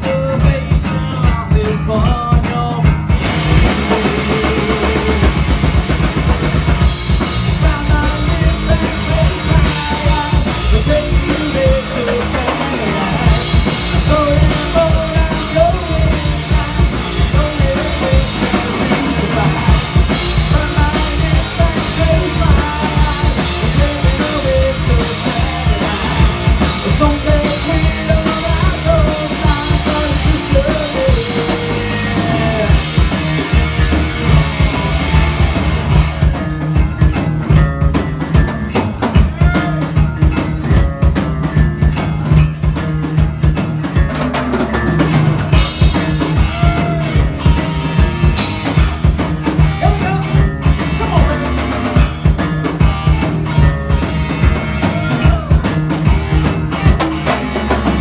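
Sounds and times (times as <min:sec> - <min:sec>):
drum kit steady beat: 0:00.0 - 0:58.0
electric guitar: 0:00.0 - 0:58.0
person singing: 0:03.6 - 0:05.4, 0:07.5 - 0:35.3, 0:45.5 - 0:47.6, 0:54.7 - 0:56.0.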